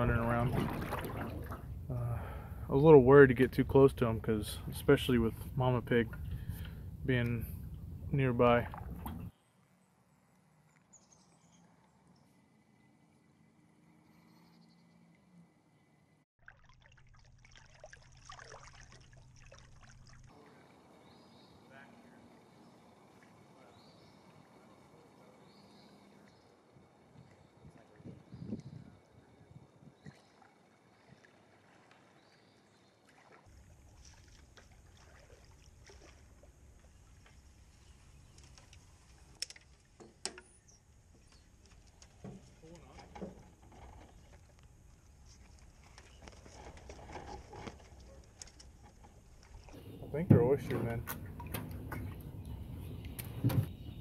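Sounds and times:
canoe paddling: 0.0 - 9.3, 16.6 - 28.4, 29.0 - 54.0
water trickling and dripping: 16.4 - 20.7, 29.7 - 40.0, 47.7 - 53.6.

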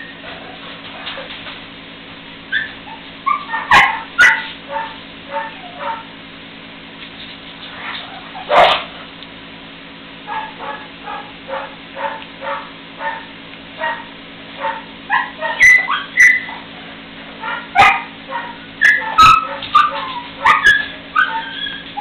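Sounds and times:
puppies squeaking and yipping: 2.5 - 6.0, 15.1 - 16.8, 17.4 - 22.0
sharp puppy yelps: 2.5 - 6.1, 8.1 - 8.9, 10.3 - 16.7, 17.4 - 22.0.

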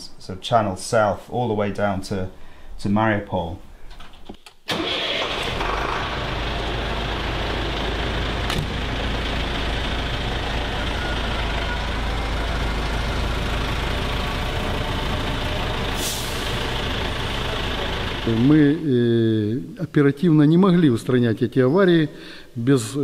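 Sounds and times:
diesel truck engine idling: 4.7 - 18.9.

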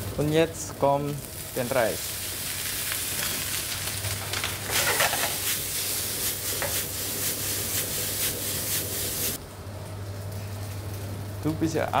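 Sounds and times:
rice sizzling in a pan: 0.0 - 9.4.

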